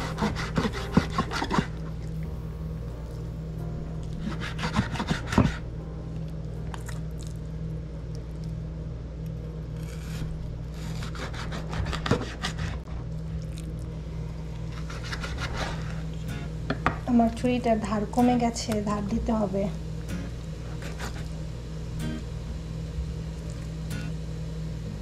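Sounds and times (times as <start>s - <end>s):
knife scraping fish on board: 0.0s - 1.8s, 4.2s - 5.6s, 10.8s - 12.8s
steady low hum: 0.0s - 25.0s.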